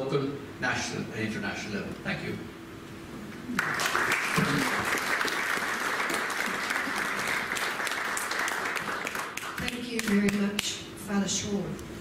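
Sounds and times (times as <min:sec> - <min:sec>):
audience applauding: 0:03.5 - 0:10.5.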